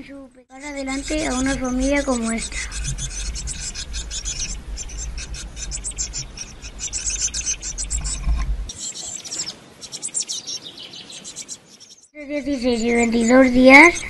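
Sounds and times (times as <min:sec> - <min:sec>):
low rumble: 0:00.0 - 0:08.7
nestlings calling: 0:00.0 - 0:14.0
outdoor bird chirps: 0:00.0 - 0:14.0
rustling in nest box: 0:00.6 - 0:12.0.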